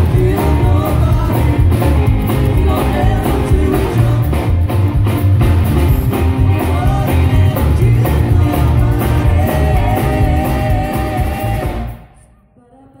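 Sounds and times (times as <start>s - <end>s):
woman singing: 0.0s - 4.4s, 6.5s - 13.0s
rockabilly band playing: 0.0s - 12.1s.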